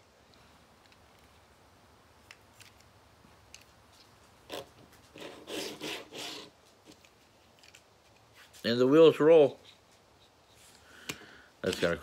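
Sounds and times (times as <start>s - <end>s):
plastic scraping and rubbing: 3.5s - 8.6s, 11.6s - 12.0s.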